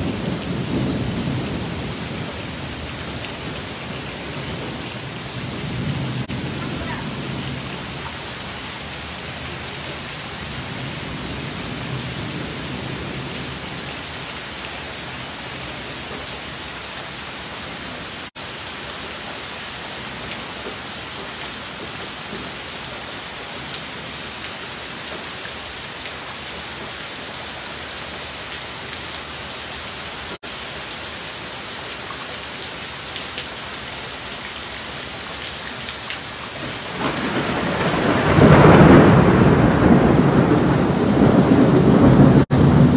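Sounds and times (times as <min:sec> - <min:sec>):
heavy rain pouring: 0:00.0 - 0:42.9
thunder peal: 0:36.7 - 0:42.9.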